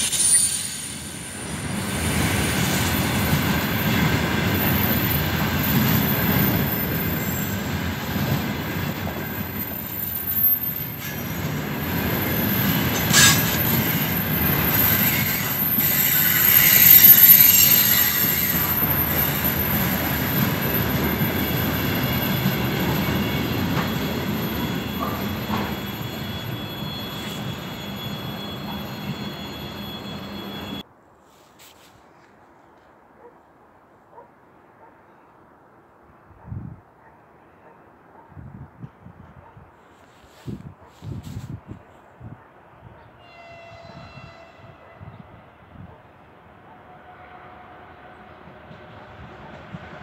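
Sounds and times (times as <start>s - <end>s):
high-pitched wheel squeal: 0.0s - 3.9s, 9.0s - 30.8s
freight train wheels rumbling: 0.0s - 30.8s, 47.0s - 50.0s.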